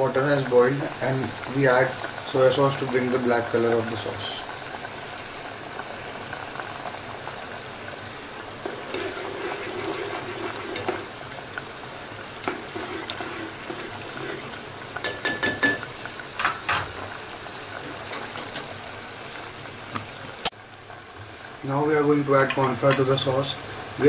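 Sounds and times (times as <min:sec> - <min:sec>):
sauce boiling and bubbling: 0:00.0 - 0:24.0
ladle knocking against pot: 0:15.0 - 0:15.8.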